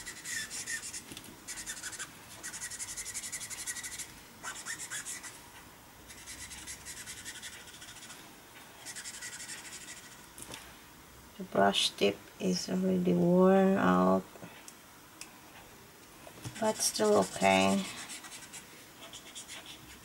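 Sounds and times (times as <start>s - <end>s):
marker nib scratching on paper: 0.0s - 5.4s, 6.1s - 8.2s, 8.9s - 10.2s, 16.5s - 20.0s.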